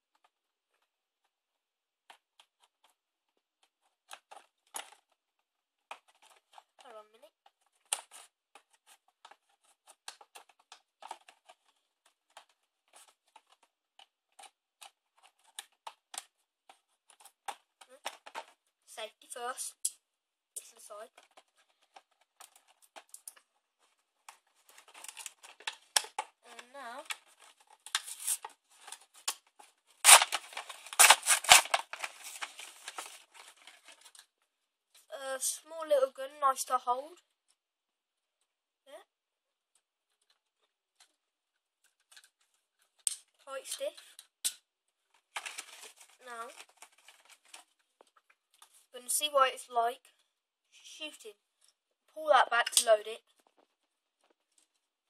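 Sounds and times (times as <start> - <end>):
cardboard packaging tearing: 24.8 - 26.2, 27.0 - 34.0, 45.4 - 47.6
knife cutting cardboard: 30.1 - 32.5.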